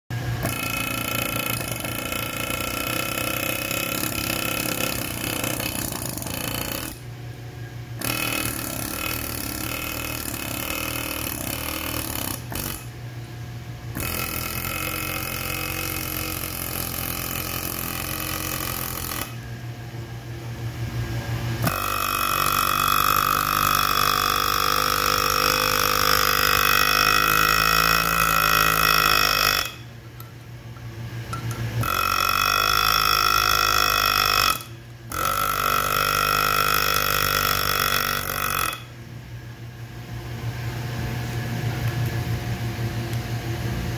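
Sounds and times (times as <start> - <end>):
air hammer chiselling stone: 0.4 - 7.1, 8.0 - 13.0, 13.9 - 19.5, 21.6 - 30.3, 31.3 - 39.0.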